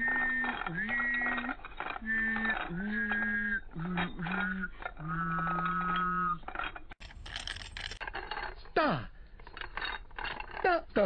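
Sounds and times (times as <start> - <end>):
slowed sing-song babbling voice: 0.0 - 6.4
click and clatter: 0.0 - 10.7.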